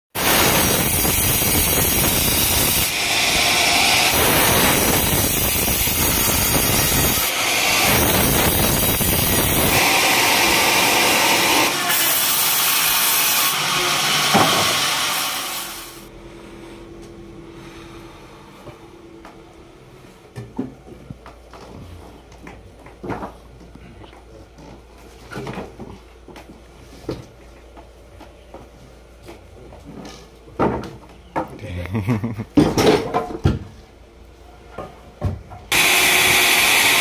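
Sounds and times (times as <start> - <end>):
band saw cutting through log: 0.2 - 16.1, 35.7 - 37.0.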